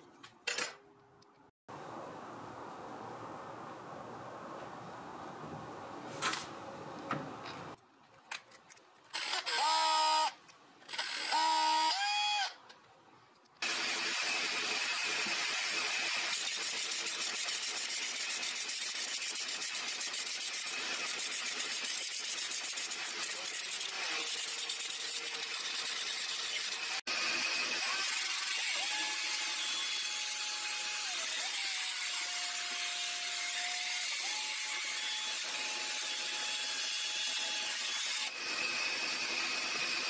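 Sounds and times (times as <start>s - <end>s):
power tool motor spinning: 9.1s - 12.6s, 13.6s - 29.8s.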